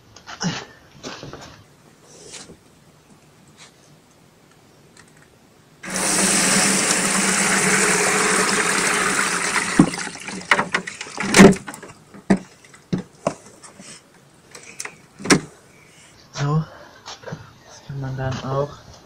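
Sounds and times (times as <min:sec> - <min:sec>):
liquid pouring into plastic tub: 0:05.8 - 0:11.9
box knocking and clunking: 0:09.6 - 0:13.5.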